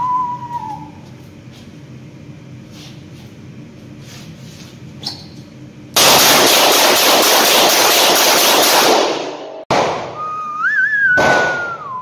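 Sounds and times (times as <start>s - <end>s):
whistling tone: 0.0s - 1.0s, 10.1s - 12.0s.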